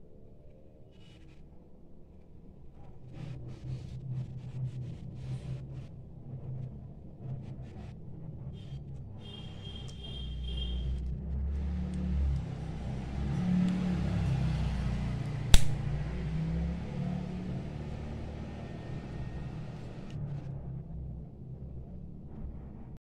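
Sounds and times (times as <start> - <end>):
steady low rumble: 14.9 - 23.0
plastic cover snapping shut: 15.5 - 15.8.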